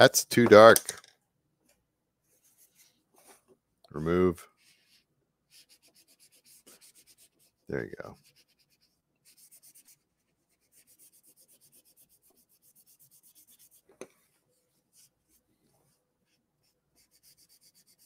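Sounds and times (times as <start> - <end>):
rubbing on paper: 2.3 - 3.4, 4.4 - 18.0.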